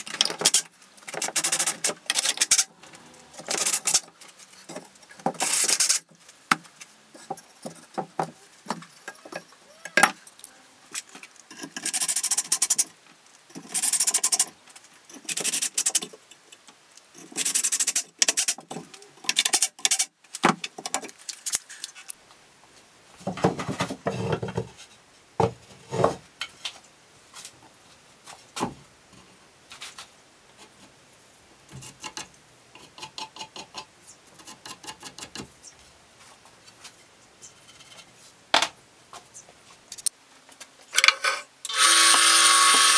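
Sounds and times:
clatter of tools and wood: 0.0s - 2.7s, 23.2s - 26.8s
cordless drill driving screws: 41.7s - 42.9s.

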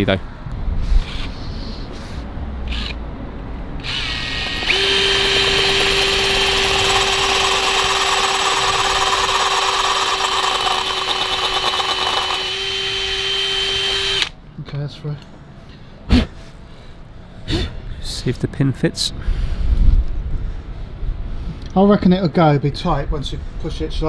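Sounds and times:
cordless drill whining: 2.7s - 3.0s, 3.8s - 14.3s
drill bit grinding metal: 3.8s - 14.3s.

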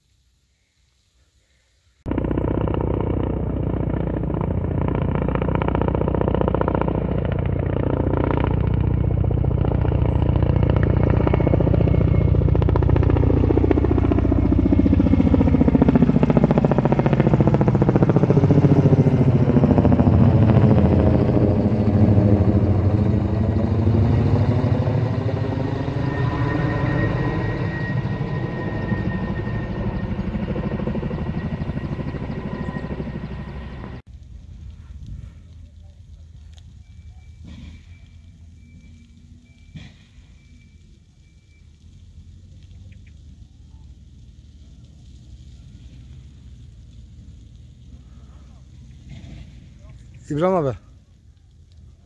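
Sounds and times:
helicopter rotor and turbine: 2.0s - 34.1s, 48.4s - 50.9s.

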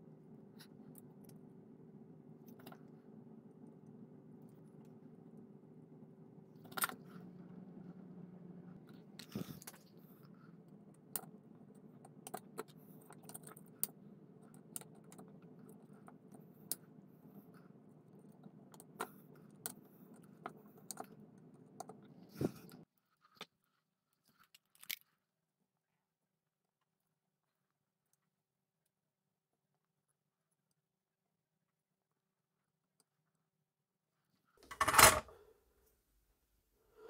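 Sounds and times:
faint steady hum: 0.0s - 22.9s.

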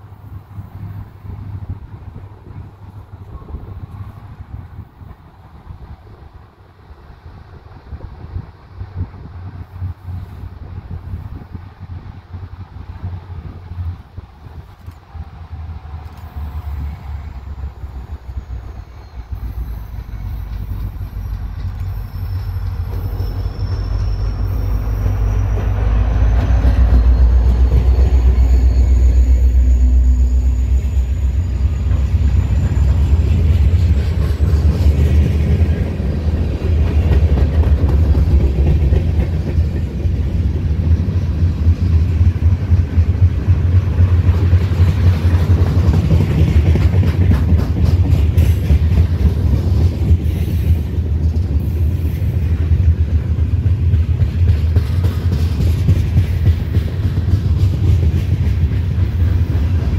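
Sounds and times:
locomotive engine rumble: 0.0s - 59.9s
train wheels rumbling on rails: 0.0s - 59.9s.

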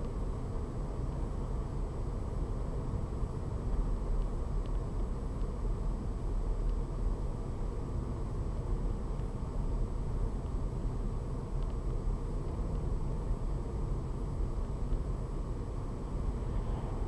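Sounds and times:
road and engine rumble in car: 0.0s - 17.0s
faint ticks: 3.6s - 5.6s, 6.2s - 7.1s, 8.4s - 9.4s, 10.3s - 13.6s.

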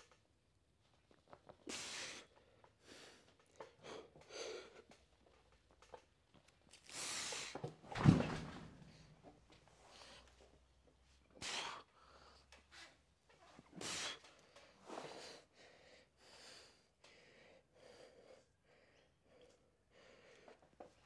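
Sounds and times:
man breathing forcefully: 13.8s - 18.5s.

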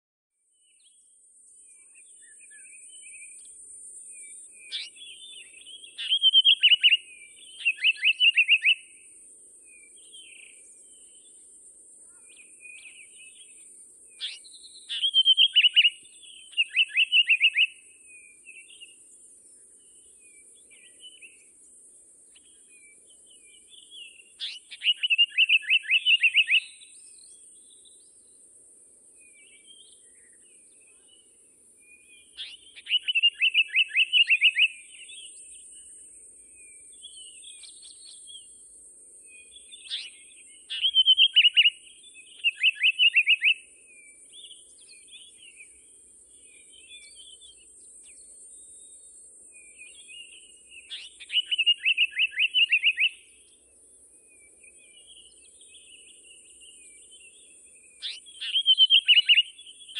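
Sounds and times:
songbird singing: 0.4s - 59.9s
soft bird calls: 4.2s - 9.0s, 12.0s - 21.6s, 22.3s - 28.3s, 32.0s - 38.6s, 39.4s - 53.7s, 54.4s - 59.9s.

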